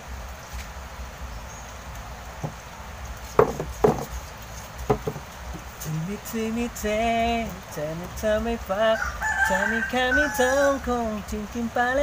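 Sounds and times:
wooden knocks on table: 0:03.4 - 0:04.2, 0:04.9 - 0:05.6.

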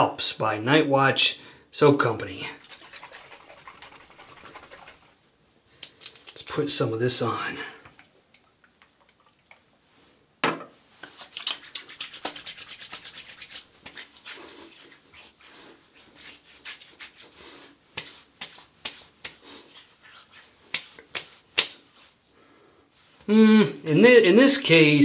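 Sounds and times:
hands rubbing and patting skin: 0:02.7 - 0:05.2, 0:11.0 - 0:22.2
sharp hand slap: 0:20.8 - 0:21.8.

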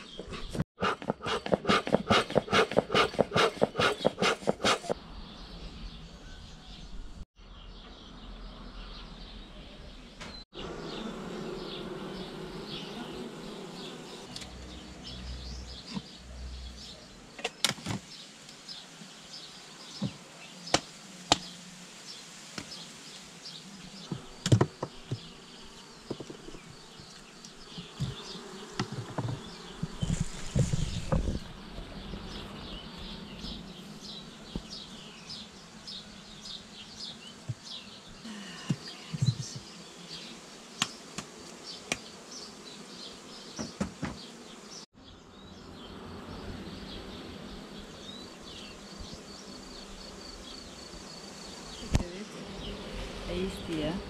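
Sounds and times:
honeybees buzzing: 0:10.5 - 0:54.0
knocks on wooden hive: 0:24.1 - 0:25.3, 0:43.6 - 0:44.3.

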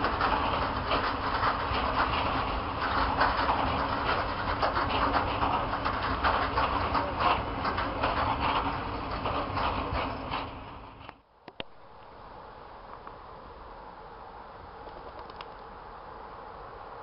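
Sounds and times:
train wheels clattering on rails: 0:00.0 - 0:11.2.

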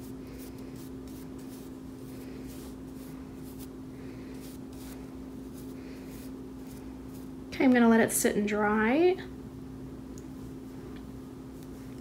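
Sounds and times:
brush rubbing wax: 0:00.0 - 0:07.4.

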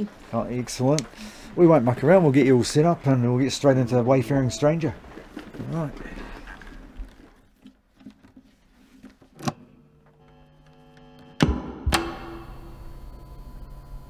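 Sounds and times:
amplifier electrical hum: 0:09.4 - 0:14.0
guitar lead plug click: 0:10.6 - 0:12.5.

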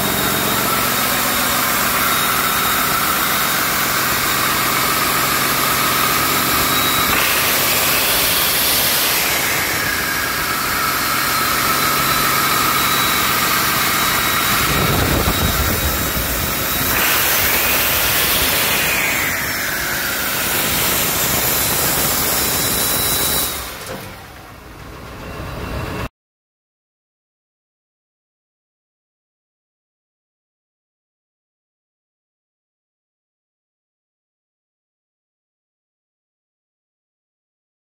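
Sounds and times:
diesel engine running with whine: 0:00.0 - 0:26.1.

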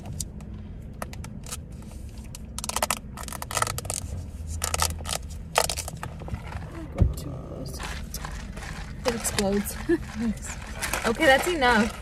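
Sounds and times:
car interior hum: 0:00.0 - 0:12.0
plastic cups scraping and crackling: 0:01.0 - 0:12.0.

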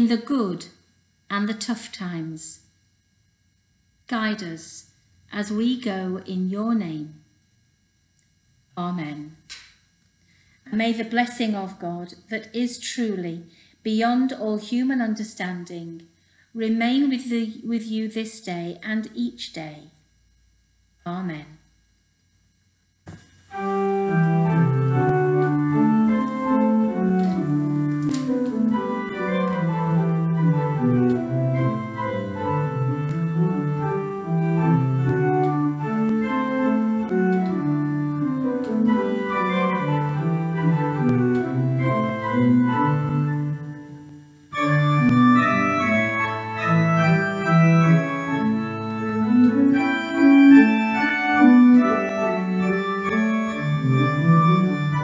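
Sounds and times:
organ music: 0:23.5 - 0:55.0.

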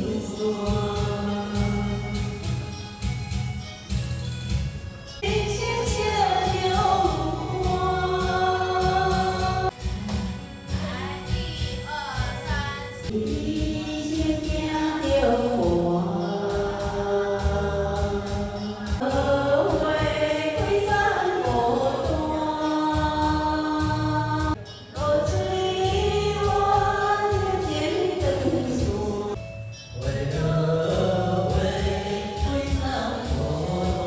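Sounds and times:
karaoke backing music: 0:00.0 - 0:34.0
woman singing: 0:05.2 - 0:09.7, 0:10.8 - 0:29.4, 0:30.4 - 0:34.0.

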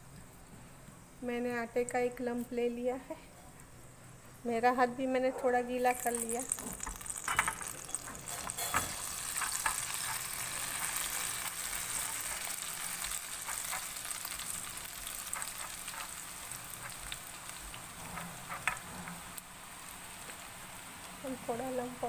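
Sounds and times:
oil sizzling: 0:05.6 - 0:22.0.

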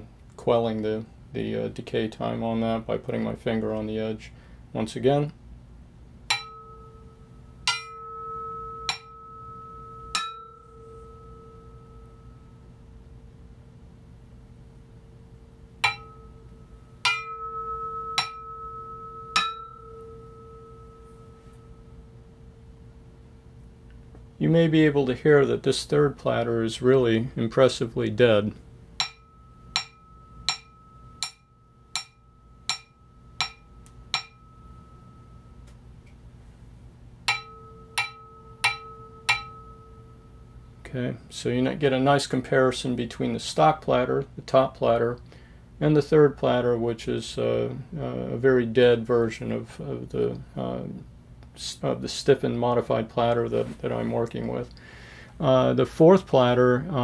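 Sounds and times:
metal platter ringing when tapped: 0:06.3 - 0:12.6, 0:15.8 - 0:22.0, 0:29.0 - 0:35.8, 0:37.3 - 0:40.7.

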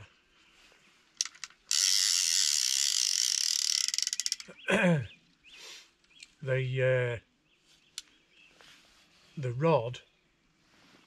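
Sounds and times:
fishing reel ratchet clicking: 0:01.2 - 0:04.5.

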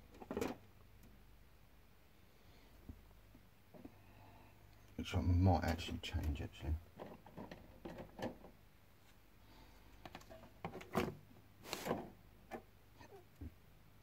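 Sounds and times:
plastic frames clicking and rustling: 0:00.0 - 0:00.7, 0:06.1 - 0:08.6, 0:10.0 - 0:11.2
plastic clattering: 0:00.1 - 0:00.6, 0:07.0 - 0:08.6.

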